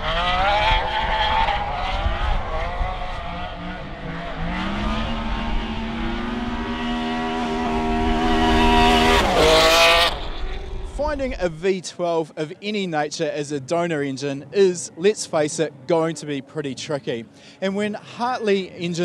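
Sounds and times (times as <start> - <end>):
engine revving hard: 0.0 - 10.8.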